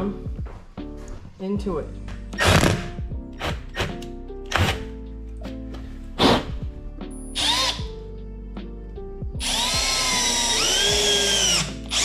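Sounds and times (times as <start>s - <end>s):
background music: 0.0s - 12.0s
cordless drill driving screw: 7.4s - 7.9s, 9.4s - 12.0s.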